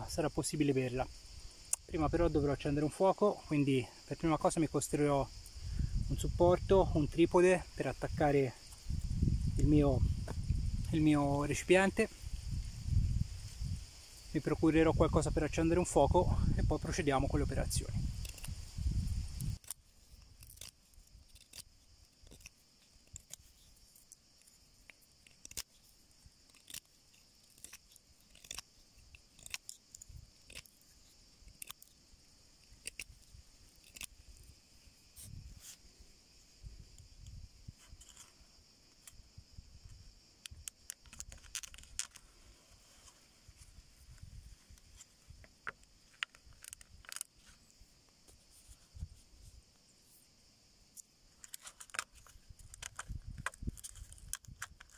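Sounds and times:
steady high hiss: 0.0s - 52.6s
knife carving wooden stick: 17.1s - 35.9s.

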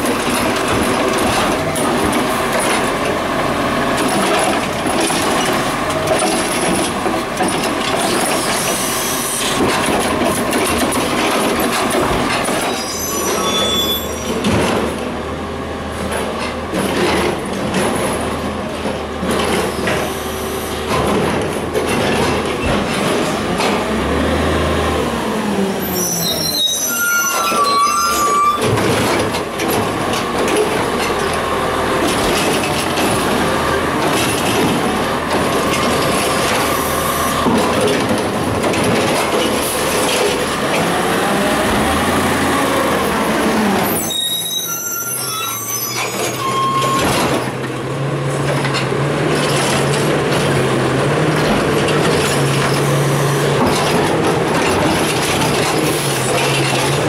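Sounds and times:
garbage truck diesel engine: 0.0s - 57.0s
brakes squealing: 11.6s - 14.5s, 25.7s - 31.4s, 39.3s - 47.6s, 48.4s - 57.0s.

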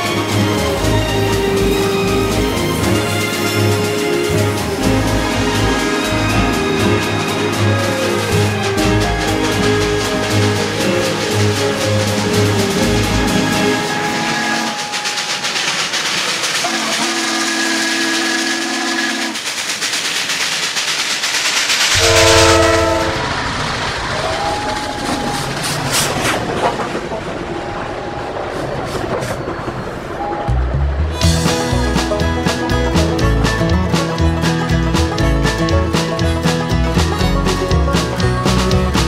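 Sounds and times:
steam hissing: 0.0s - 26.2s
steam locomotive running: 0.0s - 39.0s
steam whistle blasts: 16.6s - 19.4s, 21.9s - 23.3s.

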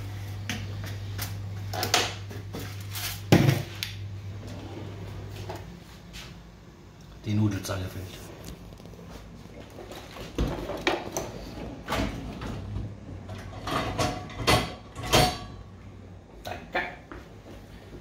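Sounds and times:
kitchen utensils clattering: 13.2s - 15.6s.

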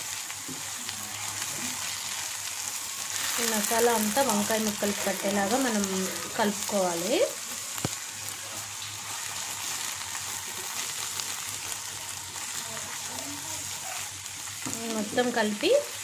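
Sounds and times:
food sizzling in oil: 0.0s - 16.0s.

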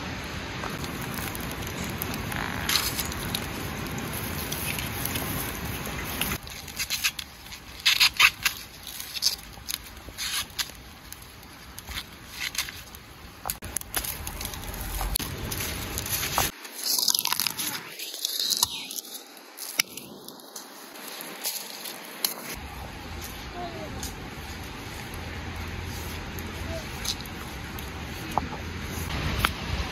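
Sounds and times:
wood fire crackling: 0.0s - 29.9s
corn husks rustling in hands: 0.6s - 29.8s
sticks scraped into fire: 0.7s - 22.6s.

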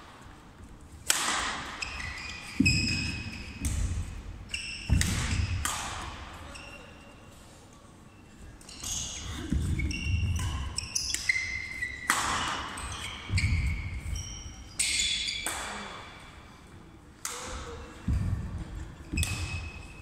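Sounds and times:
racket striking shuttlecock: 1.0s - 2.0s, 2.6s - 6.4s, 10.2s - 13.6s, 19.1s - 19.8s
shoes squeaking: 1.7s - 7.4s, 8.5s - 15.5s, 18.1s - 20.0s.

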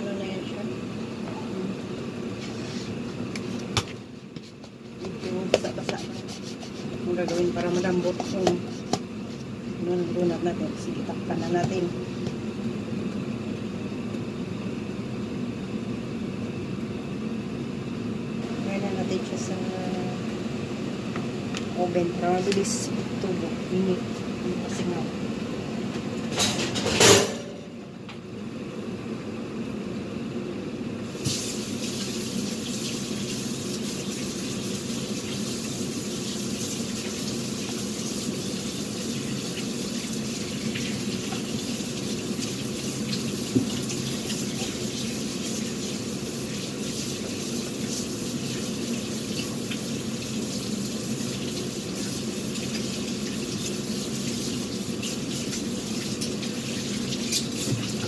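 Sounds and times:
water running from a tap: 31.1s - 58.0s.

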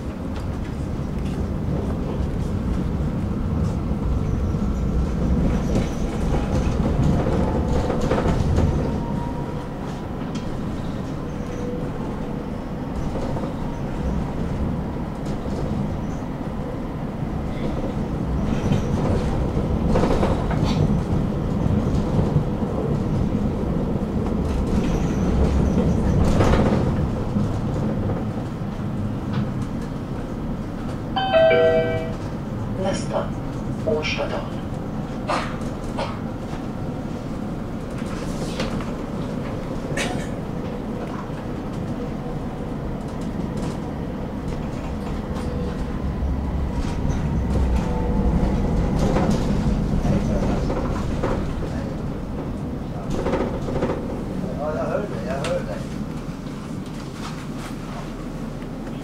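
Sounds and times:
sharp clacks under wheels: 0.0s - 9.0s, 17.6s - 31.2s, 42.8s - 54.5s
tram wheels rumbling on rails: 0.0s - 59.0s.

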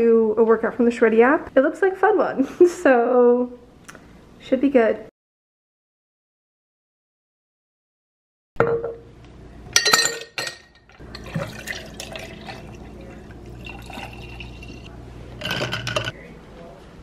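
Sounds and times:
clinks against glass jar: 9.8s - 12.6s
liquid pouring over ice: 11.0s - 14.9s.

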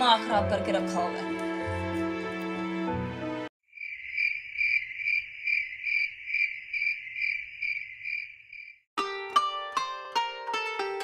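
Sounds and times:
background music: 0.0s - 3.5s
crickets chirping: 3.6s - 8.9s.

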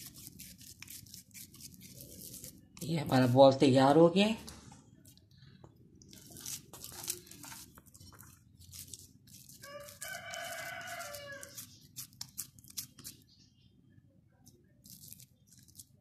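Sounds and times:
hands squishing mashed potato: 6.0s - 13.2s
rooster crowing: 9.6s - 11.7s.

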